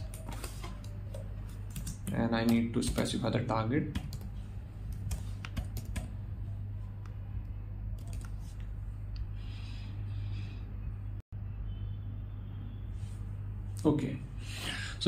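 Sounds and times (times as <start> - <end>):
computer keyboard keystrokes: 0.0 - 4.3, 4.9 - 6.1, 8.0 - 8.6
steady low hum: 0.0 - 15.0.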